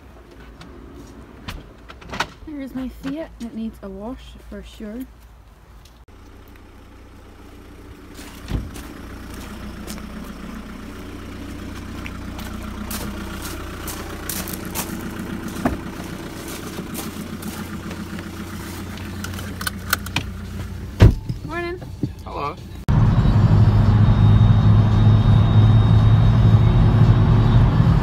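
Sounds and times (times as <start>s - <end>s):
car engine idling: 5.4s - 28.0s
footsteps on gravel: 7.9s - 22.2s.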